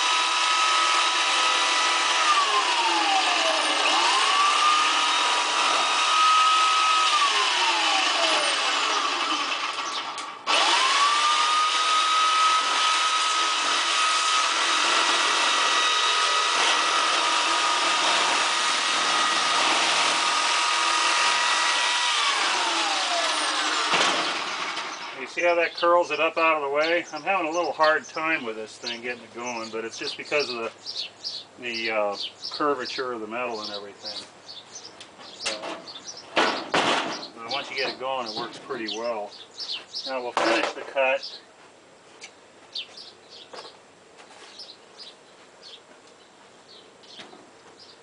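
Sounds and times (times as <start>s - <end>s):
electric metal shear whining: 0.0s - 26.6s.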